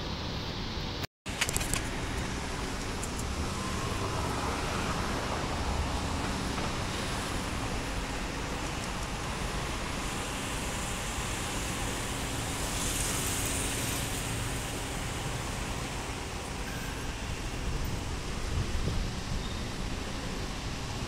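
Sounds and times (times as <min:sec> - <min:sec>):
road traffic passing: 0:00.1 - 0:21.0.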